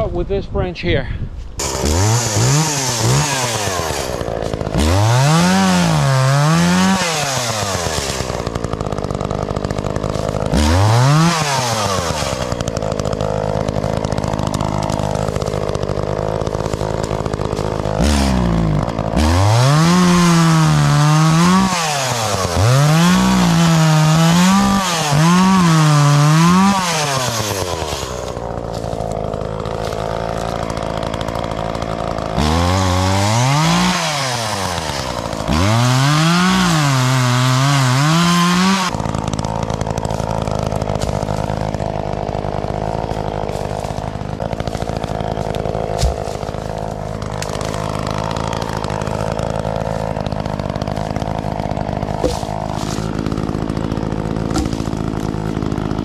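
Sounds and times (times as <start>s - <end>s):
chainsaw revving and cutting: 1.6s - 56.0s.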